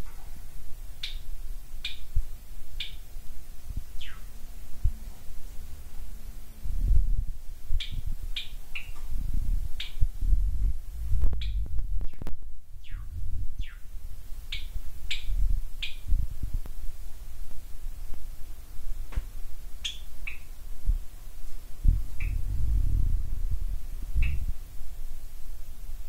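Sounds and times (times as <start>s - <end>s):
birds chirping: 0.0s - 3.1s, 3.9s - 6.5s, 7.8s - 9.1s, 9.7s - 10.1s, 11.4s - 16.1s, 19.8s - 20.6s, 22.0s - 22.5s, 24.1s - 24.5s.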